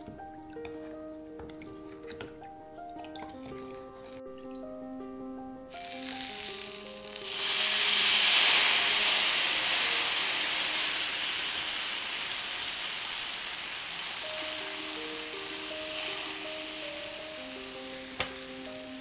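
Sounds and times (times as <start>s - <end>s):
batter sizzling on hot griddle: 5.7s - 19.0s.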